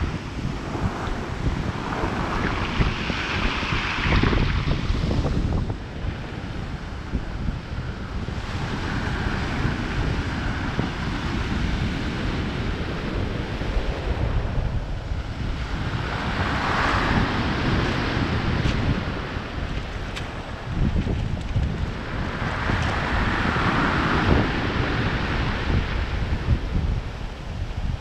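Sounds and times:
wind buffeting microphone: 0.0 - 28.0
waves breaking on pebble beach: 0.1 - 6.8, 15.3 - 26.4.

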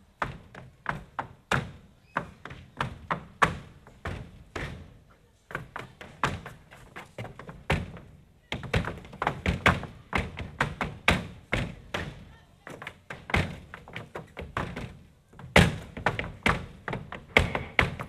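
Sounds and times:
boots stamping on stage floor: 5.5 - 18.0.

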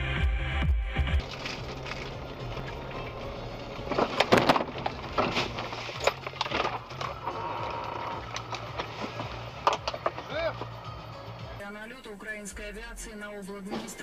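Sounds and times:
knocks and clatters: 1.2 - 10.8
vehicle crash impact: 1.2 - 10.8.

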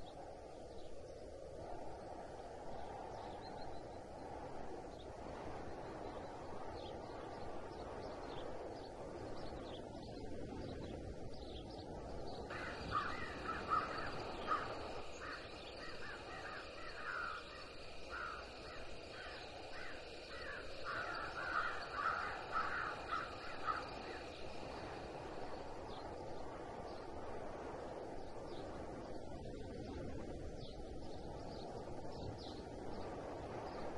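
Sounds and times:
crows cawing: 12.5 - 24.9.

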